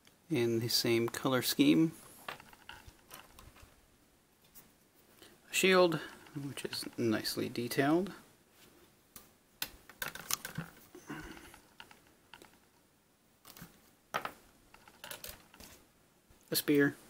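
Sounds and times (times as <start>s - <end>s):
small plastic pieces clicking on table: 9.6s - 10.8s, 13.4s - 15.7s.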